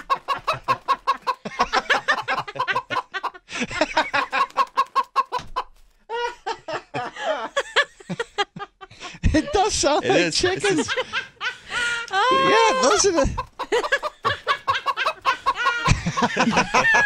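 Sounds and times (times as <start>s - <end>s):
chickens cackling and clucking: 0.0s - 6.6s, 10.9s - 17.0s
people laughing: 0.0s - 17.0s.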